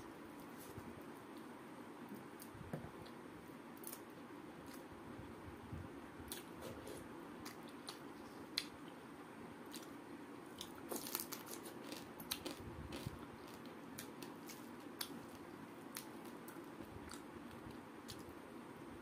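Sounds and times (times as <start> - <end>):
person chewing crunchy food: 9.7 - 18.2.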